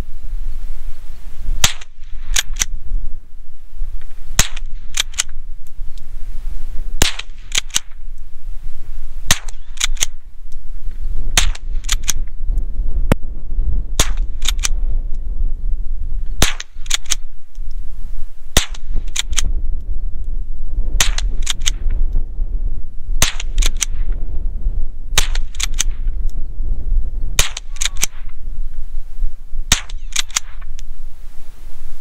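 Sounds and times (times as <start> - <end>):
rifle shots: 1.6 - 2.8, 4.3 - 5.4, 7.0 - 8.0, 9.3 - 10.2, 11.4 - 12.3, 14.0 - 14.8, 16.4 - 17.3, 18.5 - 19.5, 21.0 - 21.9, 23.2 - 24.1, 25.1 - 26.1, 27.4 - 28.3, 29.7 - 30.7
rifle slide clacking: 4.4 - 5.4, 9.3 - 10.2, 29.8 - 30.6.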